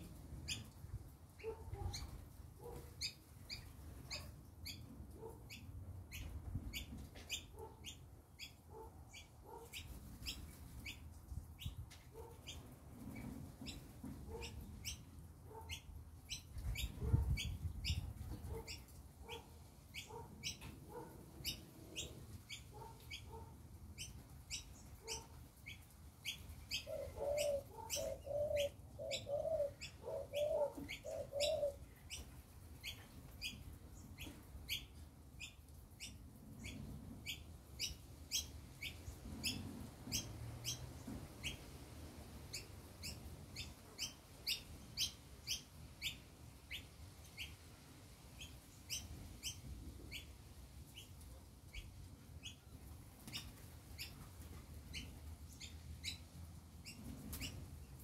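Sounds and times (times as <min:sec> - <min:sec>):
small birds chirping: 0:00.3 - 0:41.7, 0:42.4 - 0:47.6, 0:48.4 - 0:58.0
dove cooing: 0:26.7 - 0:31.9.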